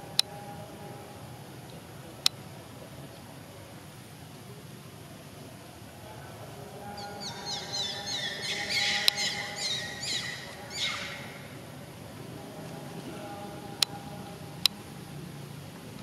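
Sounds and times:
baby monkey squealing: 7.2s - 11.5s.

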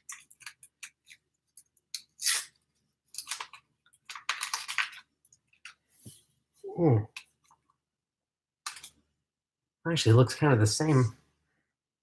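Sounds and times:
packaging rustling and crinkling: 3.1s - 5.8s.

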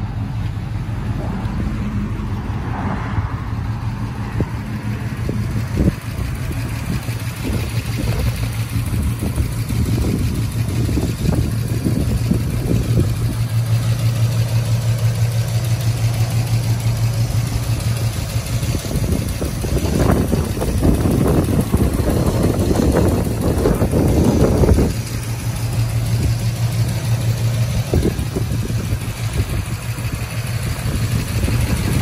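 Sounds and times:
car engine idling: 0.0s - 32.0s.

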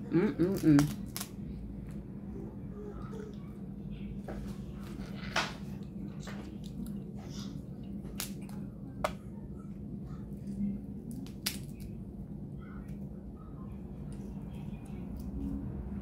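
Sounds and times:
crab shells cracking: 0.5s - 1.4s, 8.2s - 9.2s, 11.0s - 12.0s.

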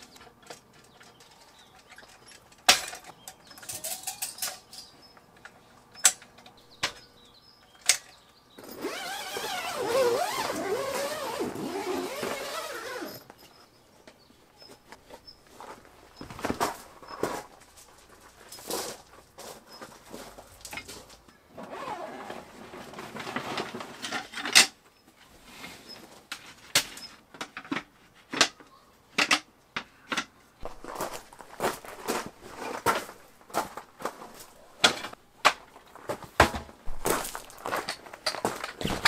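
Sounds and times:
camping gear knocks and clatters: 0.0s - 7.2s, 14.7s - 24.8s, 30.1s - 39.0s
rustling and scraping: 8.6s - 28.4s, 30.6s - 39.0s.

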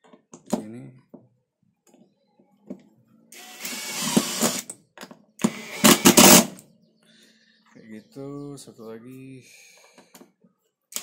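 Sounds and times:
impact driver driving screw into wood: 3.4s - 4.7s, 5.4s - 6.6s.

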